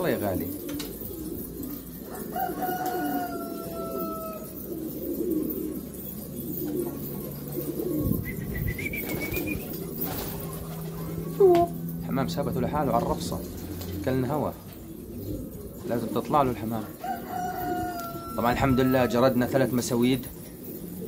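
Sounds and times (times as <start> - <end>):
pigeons cooing: 0.0 - 21.0
thin whistle-like tones: 8.2 - 9.7.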